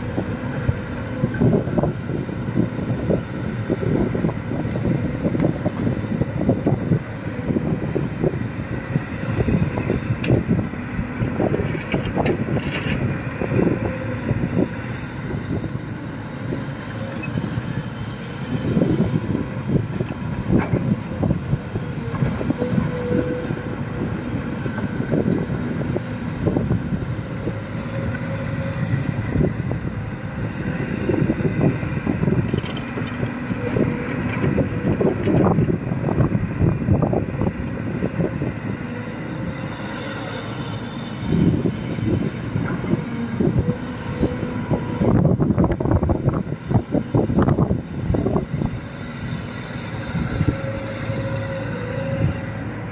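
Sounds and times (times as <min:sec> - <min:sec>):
diesel engine under load: 0:00.0 - 0:52.9.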